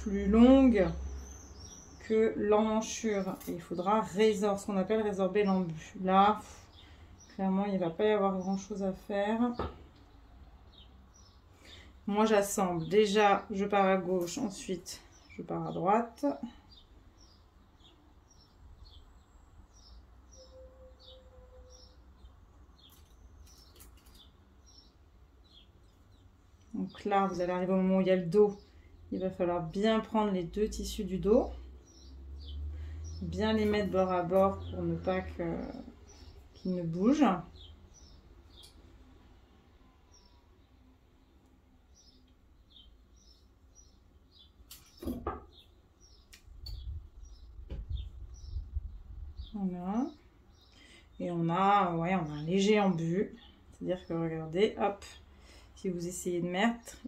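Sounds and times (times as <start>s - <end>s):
small bird chirping: 0.0s - 3.8s, 16.7s - 27.1s, 31.5s - 39.1s, 39.8s - 51.2s
bird chirping faintly: 16.7s - 27.1s.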